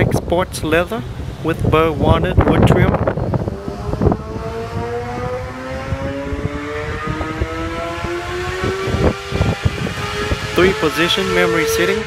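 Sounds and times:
wind and handling thumps on microphone: 0:01.0 - 0:10.6
vehicle engine running: 0:07.0 - 0:12.0.

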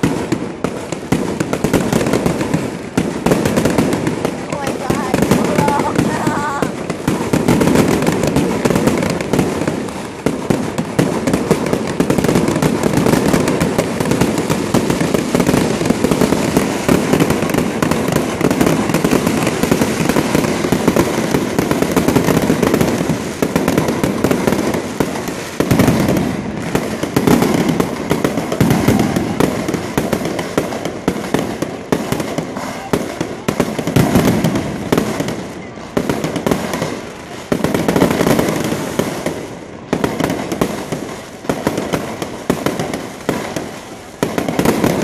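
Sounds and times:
fireworks bangs and crackles: 0:00.0 - 0:45.0.

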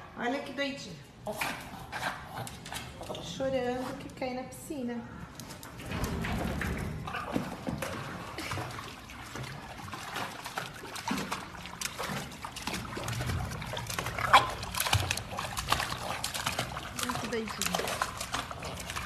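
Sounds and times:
water splashing: 0:05.7 - 0:19.0.

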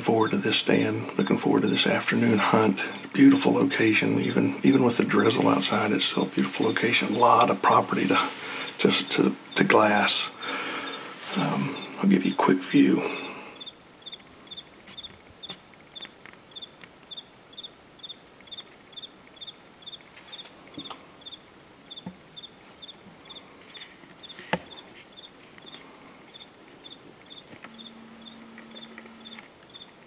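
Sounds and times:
insect chirping: 0:08.4 - 0:12.3, 0:13.2 - 0:30.0.

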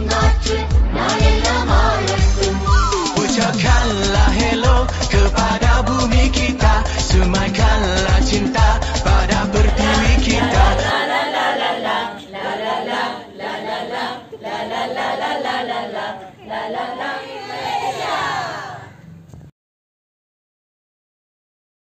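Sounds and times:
song with heavy beat: 0:00.0 - 0:10.9
women singing in unison: 0:00.0 - 0:19.0.

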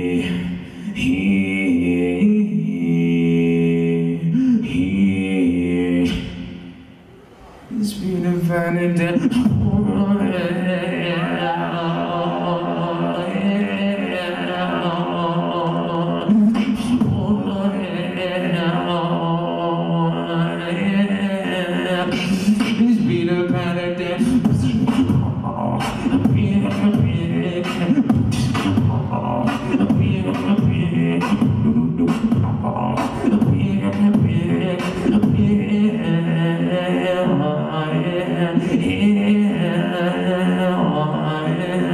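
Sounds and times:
gliding vocal notes: 0:00.0 - 0:41.9
beatboxed snare and kick: 0:06.0 - 0:06.4, 0:16.3 - 0:17.5, 0:22.1 - 0:23.6, 0:24.2 - 0:35.7
beatboxing into a microphone: 0:06.0 - 0:06.5, 0:07.8 - 0:10.4, 0:15.6 - 0:17.8, 0:21.9 - 0:37.7.

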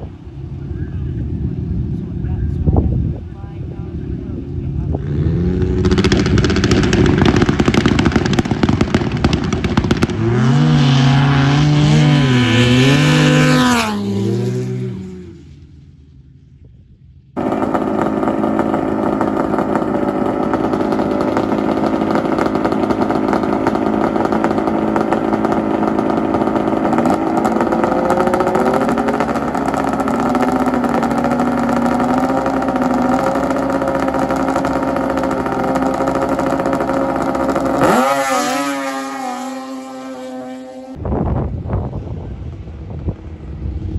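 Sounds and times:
snowmobile engines revving: 0:00.0 - 0:15.4, 0:17.4 - 0:41.0.

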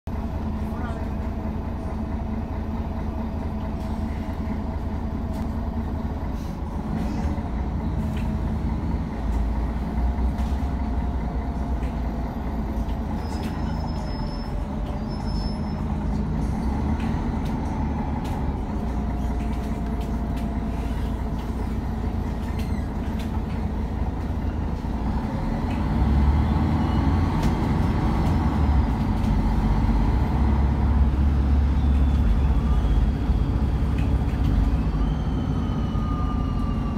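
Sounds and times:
bus engine and road rumble: 0:00.0 - 0:36.9
faint drivetrain whines: 0:12.0 - 0:36.9.

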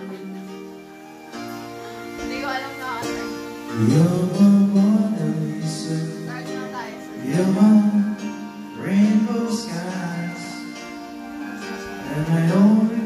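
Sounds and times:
music: 0:00.0 - 0:13.0
person singing long held notes: 0:03.6 - 0:11.2, 0:11.8 - 0:13.0.

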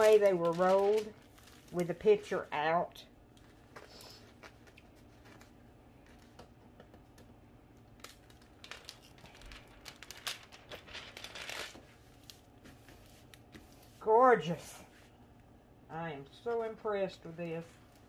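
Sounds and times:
canvas crinkling and rustling: 0:00.0 - 0:02.8, 0:08.0 - 0:14.0.

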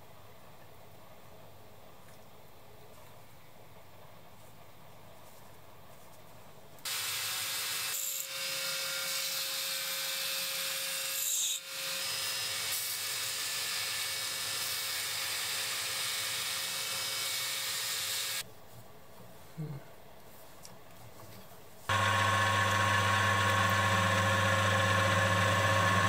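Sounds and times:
power tool hissing: 0:21.9 - 0:26.0.

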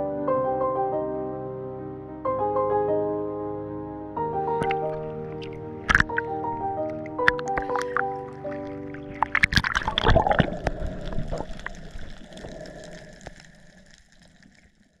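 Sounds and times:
seawater splashing and sloshing: 0:04.5 - 0:14.7.

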